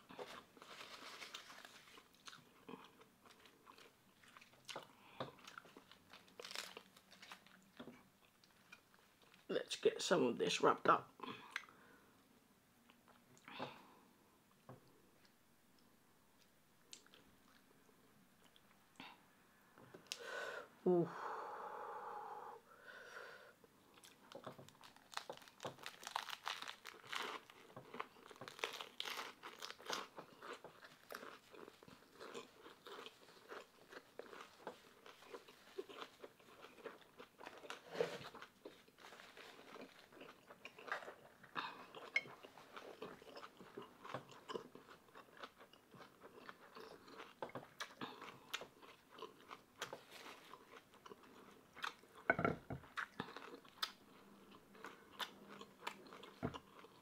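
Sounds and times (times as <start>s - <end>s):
chewing crunchy food: 0.0s - 9.5s, 23.9s - 57.0s.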